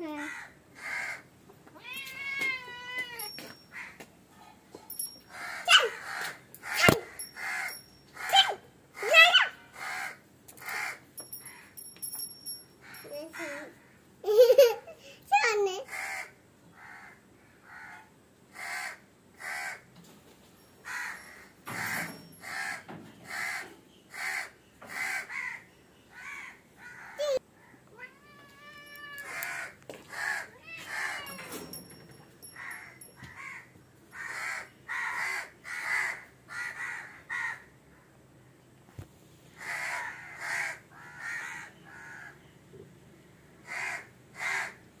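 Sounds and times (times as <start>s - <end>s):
crow cawing: 0.1s - 1.3s, 5.3s - 6.8s, 9.8s - 11.7s, 15.9s - 19.8s, 20.9s - 27.8s, 29.2s - 31.4s, 32.6s - 37.7s, 39.6s - 42.4s, 43.6s - 44.8s.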